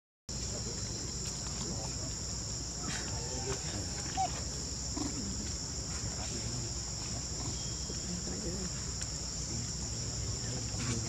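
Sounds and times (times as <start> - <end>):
shrill insect chorus: 0.3 - 11.0
faint chirp: 7.3 - 8.9.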